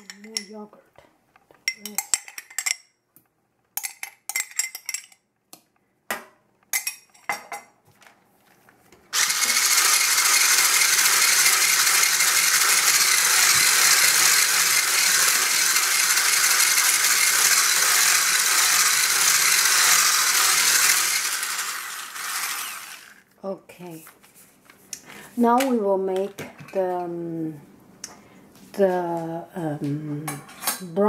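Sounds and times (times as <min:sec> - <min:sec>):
electric whisk motor whirring: 0:09.2 - 0:23.3.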